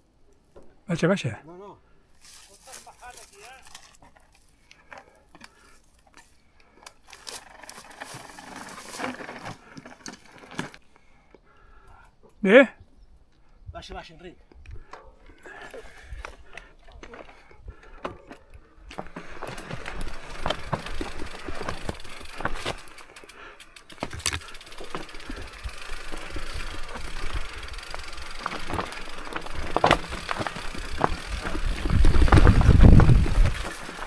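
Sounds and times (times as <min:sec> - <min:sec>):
bike rattling: 0:02.2 - 0:10.8, 0:14.8 - 0:34.0
tyres crunching over stones: 0:02.2 - 0:10.8, 0:18.9 - 0:34.0
bike knocking on rocks: 0:18.9 - 0:23.0, 0:23.9 - 0:34.0.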